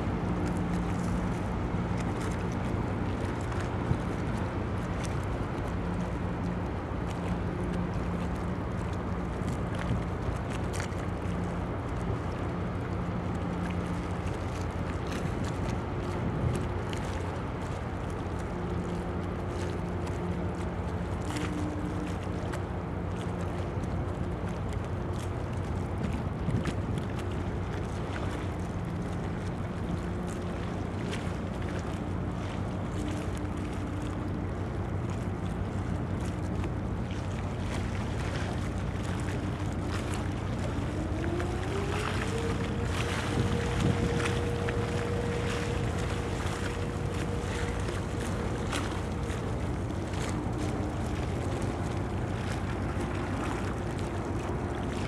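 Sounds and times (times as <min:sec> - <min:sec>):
wind on microphone: 0:15.0 - 0:16.8, 0:25.8 - 0:29.9, 0:36.9 - 0:55.0
boat diesel engines droning: 0:27.3 - 0:55.0.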